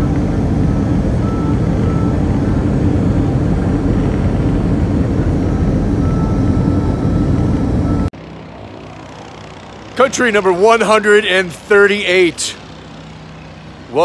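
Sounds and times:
airliner cabin engine rumble: 0:00.0 - 0:08.1.

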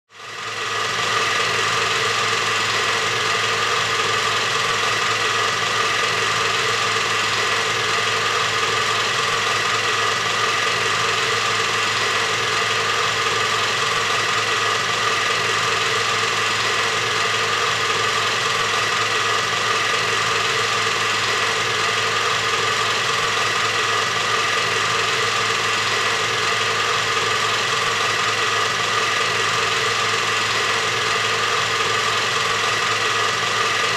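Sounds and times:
film projector whirring: 0:00.1 - 0:33.9.

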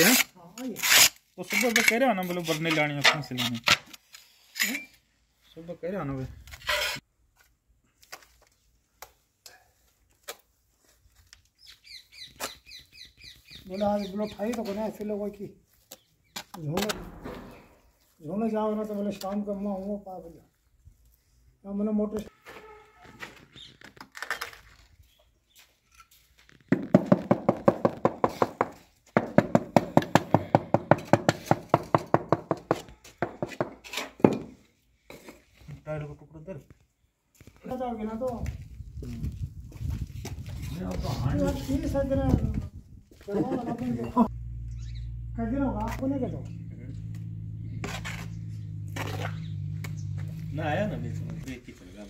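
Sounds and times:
bird chirping: 0:11.6 - 0:14.7, 0:44.0 - 0:51.4.

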